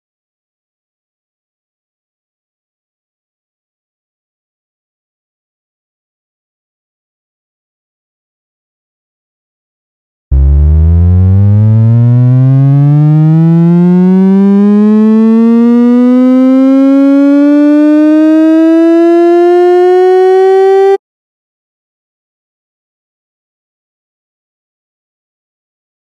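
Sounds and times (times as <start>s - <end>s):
buzzy synthesized tone rising: 10.3s - 21.0s.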